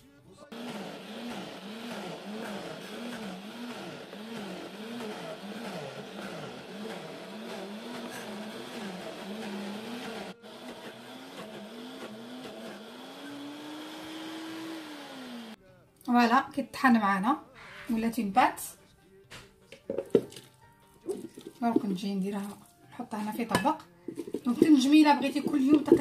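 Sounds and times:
blender motor grinding: 0.5s - 15.6s.

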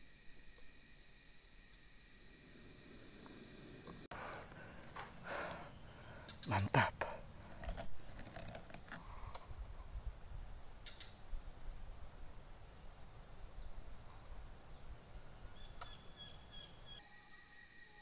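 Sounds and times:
high-pitched insect chirring: 0.1s - 18.0s.

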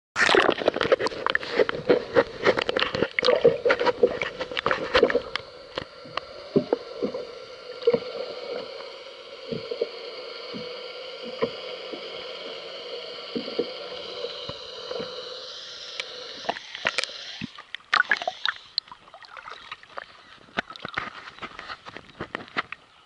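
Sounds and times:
water sloshing and splashing: 0.2s - 15.4s, 16.0s - 22.6s
steady underwater hum: 0.2s - 23.0s.

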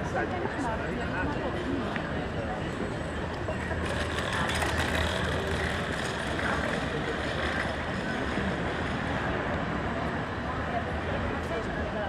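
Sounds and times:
street noise: 0.0s - 12.0s
vehicle engine hum: 2.6s - 11.4s.

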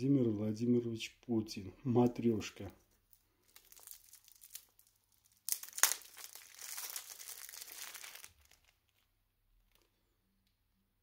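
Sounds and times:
plastic packaging crinkling: 2.8s - 10.0s.

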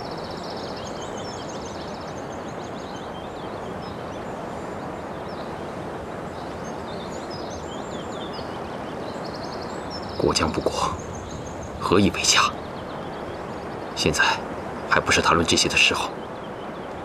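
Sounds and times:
small birds chirping: 0.0s - 17.0s
steady hiss: 0.0s - 17.0s.

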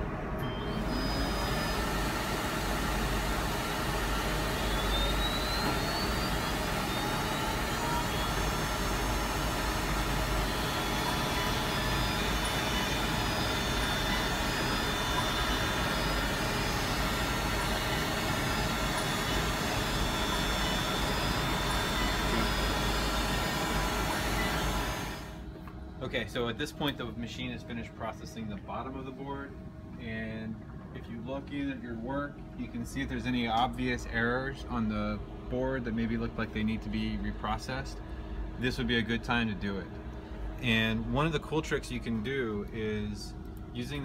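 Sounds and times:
rising whine: 0.0s - 26.6s
milling machine whirring: 0.1s - 25.5s.

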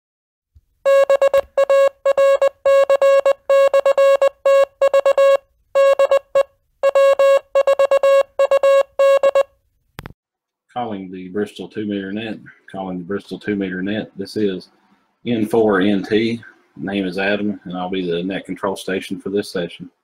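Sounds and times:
morse code beeps: 0.9s - 9.5s.

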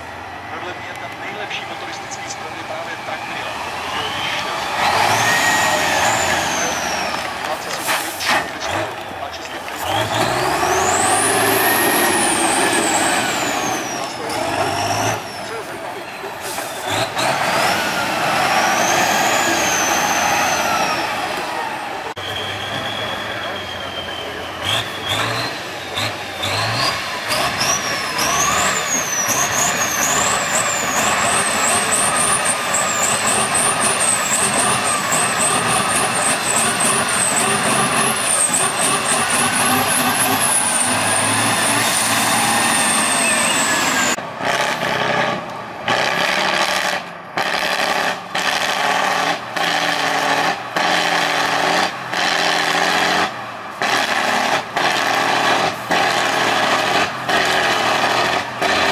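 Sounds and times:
truck diesel engine working hard: 0.0s - 58.9s
truck engine revving: 0.0s - 58.9s.

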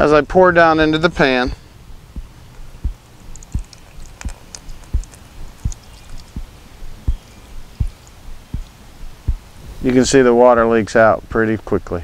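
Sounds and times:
steady low thump: 1.9s - 3.6s, 4.2s - 9.8s
water trickling into concrete: 2.6s - 8.8s
small splashes and drips: 3.2s - 8.8s.

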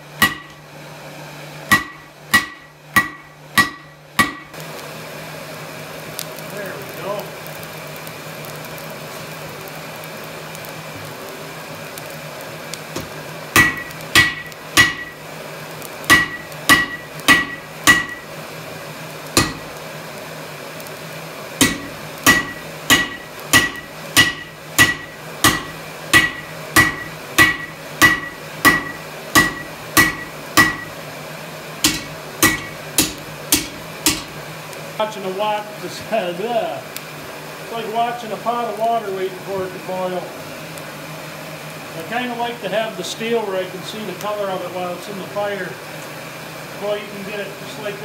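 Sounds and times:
hammer striking steel on anvil: 0.2s - 0.6s, 1.7s - 4.6s, 13.6s - 15.2s, 16.1s - 18.3s, 19.4s - 19.8s, 21.6s - 31.0s, 31.8s - 34.4s.

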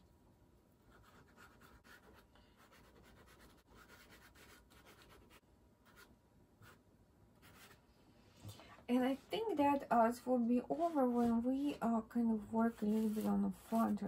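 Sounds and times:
pastel scratching on paper: 0.9s - 6.8s, 7.4s - 7.8s, 10.6s - 11.6s, 12.6s - 14.0s.

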